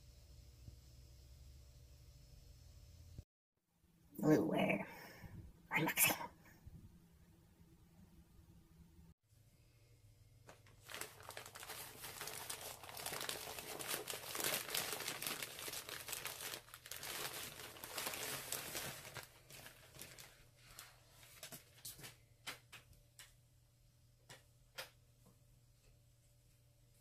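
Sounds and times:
packaging crinkling and rustling: 0:10.5 - 0:22.2.

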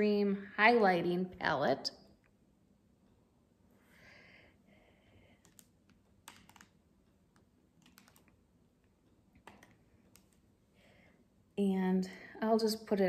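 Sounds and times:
faint clicks and taps: 0:05.4 - 0:10.6.

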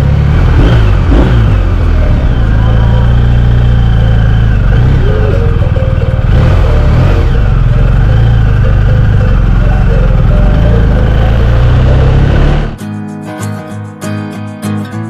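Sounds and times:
motorcycle engine revving: 0:00.0 - 0:12.8
guitar music: 0:00.0 - 0:15.0.

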